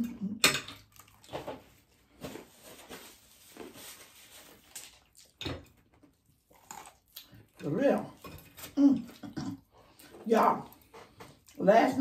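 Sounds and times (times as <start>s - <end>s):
crispy chicken crunching: 3.5s - 9.2s.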